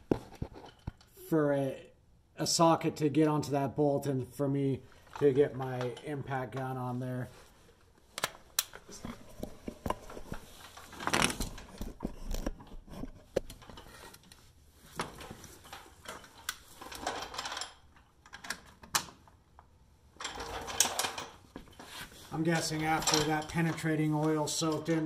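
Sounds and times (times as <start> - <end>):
rustling: 6.8 - 17.6, 20.3 - 24.6
tools and parts clinking: 15.0 - 25.0.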